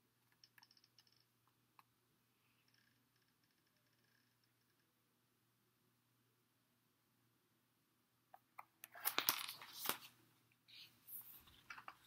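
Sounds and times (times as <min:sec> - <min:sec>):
paper page turning: 0:08.9 - 0:10.2.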